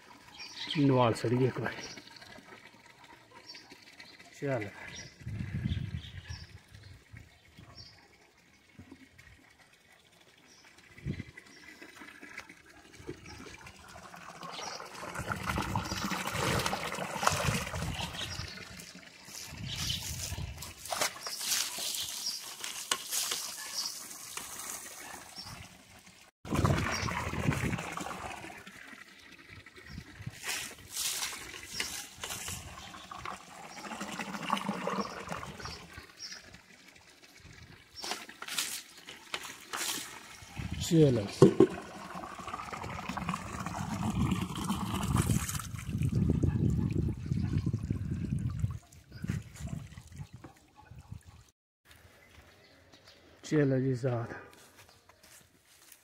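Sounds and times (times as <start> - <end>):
water pouring into trough: 0.0 - 7.6, 8.2 - 50.4
water splashing on animal hide: 15.1 - 25.6, 30.3 - 34.8, 37.9 - 42.1.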